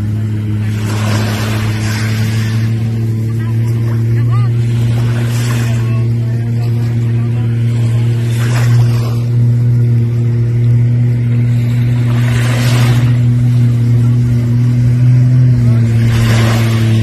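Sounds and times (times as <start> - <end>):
water spray rushing: 0.0 - 7.0, 11.2 - 17.0
watercraft engine running: 0.0 - 17.0.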